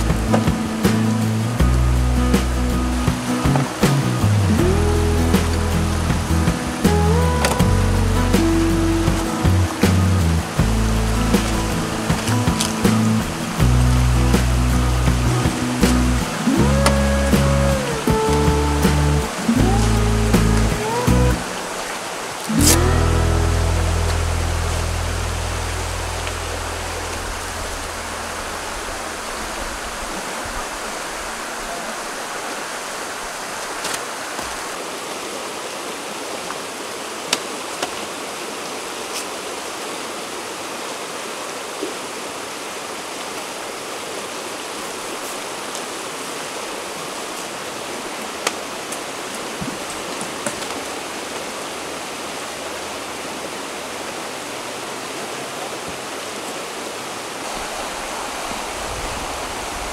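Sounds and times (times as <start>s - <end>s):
river rushing over rocks: 0.0s - 59.9s
tent cover clicks and knocks: 11.4s - 13.4s, 22.5s - 22.8s.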